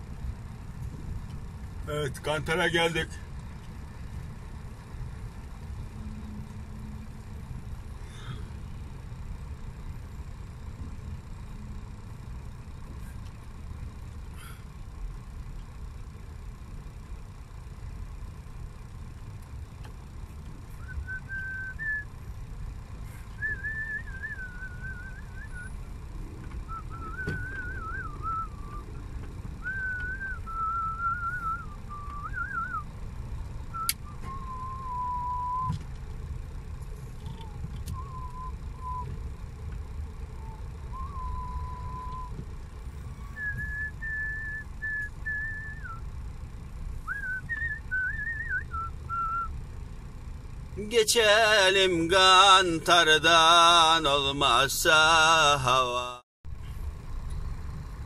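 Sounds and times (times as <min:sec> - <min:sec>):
truck engine rumble: 0:00.0 - 0:58.0
man whistling a tune: 0:20.8 - 0:22.1, 0:23.4 - 0:25.8, 0:26.7 - 0:28.9, 0:29.6 - 0:32.8, 0:33.7 - 0:35.8, 0:37.9 - 0:39.1, 0:40.4 - 0:42.4, 0:43.2 - 0:46.0, 0:47.1 - 0:49.5.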